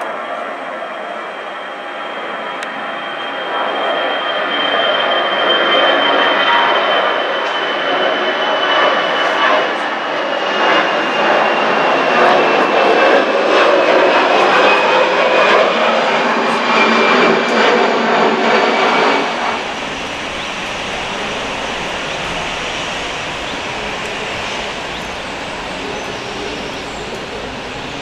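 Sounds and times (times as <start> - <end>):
distant jet rumble: 0.0 - 28.0
jet engines passing overhead: 0.0 - 28.0.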